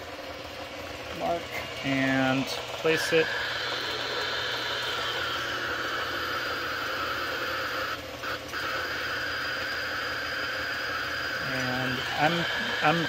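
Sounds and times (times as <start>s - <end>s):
low vacuum pump hum: 0.0s - 13.0s.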